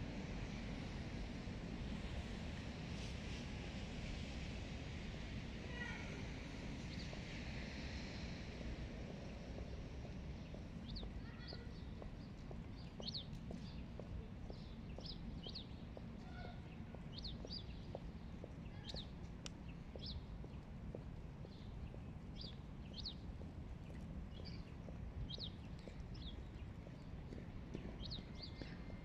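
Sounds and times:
small birds chirping: 0:09.3 - 0:29.0.

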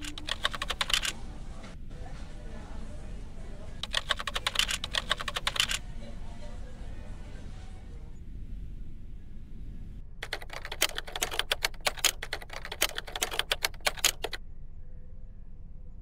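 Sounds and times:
keyboard key clicks: 0:00.0 - 0:01.1, 0:03.8 - 0:05.8, 0:10.2 - 0:14.4.

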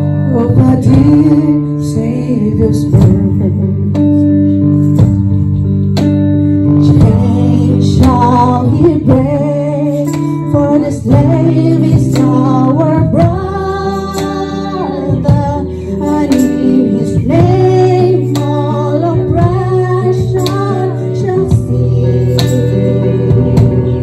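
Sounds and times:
guitar accompaniment: 0:00.0 - 0:24.0
group singing a carol: 0:20.5 - 0:24.0.

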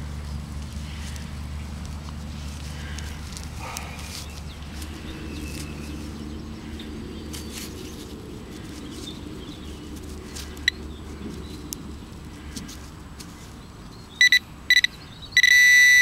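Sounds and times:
soil rustling and crumbling: 0:00.0 - 0:13.9
steady low hum: 0:00.0 - 0:16.0
pinpointer short high beep: 0:14.2 - 0:16.0.

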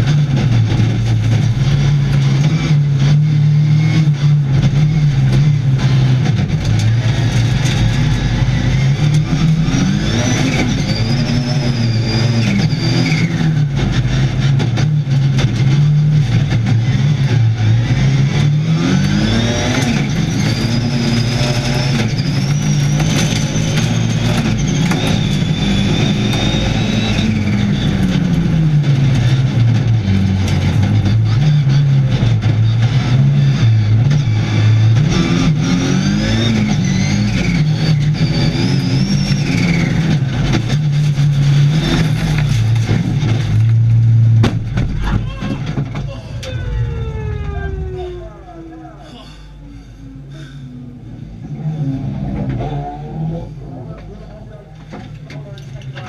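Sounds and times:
race car engine revving: 0:00.0 - 0:56.0
sharp crackles and knocks: 0:39.2 - 0:46.6.

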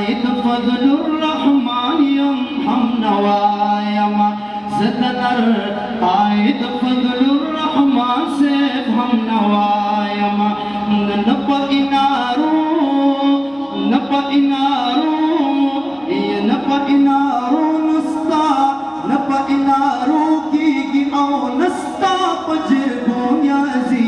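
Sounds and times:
man singing through loudspeakers: 0:00.0 - 0:24.0.

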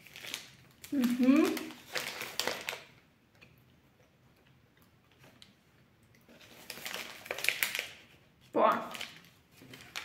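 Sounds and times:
paper wrapper rustling: 0:00.0 - 0:03.0, 0:06.2 - 0:10.0
snack wrapper crinkling: 0:00.0 - 0:10.0.

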